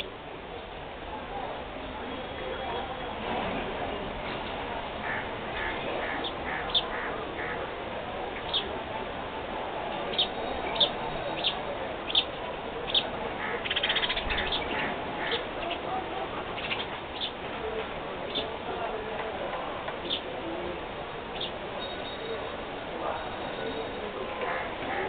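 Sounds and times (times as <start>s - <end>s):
background noise: 0.0s - 25.0s
small birds chirping: 5.0s - 7.7s, 8.3s - 8.8s, 9.9s - 15.9s, 16.5s - 17.4s, 21.3s - 25.0s.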